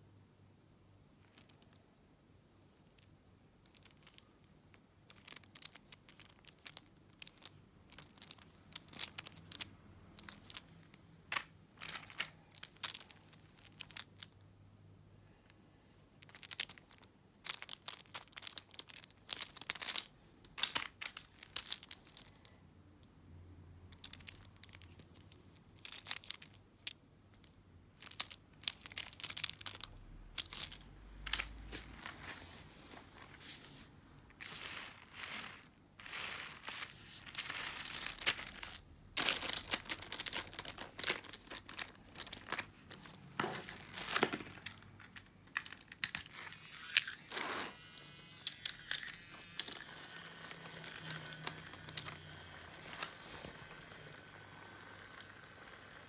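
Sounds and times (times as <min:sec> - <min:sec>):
wooden toy train clicks and knocks: 0:02.8 - 0:14.4, 0:16.2 - 0:22.5, 0:23.9 - 0:31.6, 0:37.3 - 0:43.1, 0:48.3 - 0:53.0
scraping and rustling: 0:30.4 - 0:54.0
toy train rolling: 0:34.4 - 0:43.1, 0:45.6 - 0:56.0.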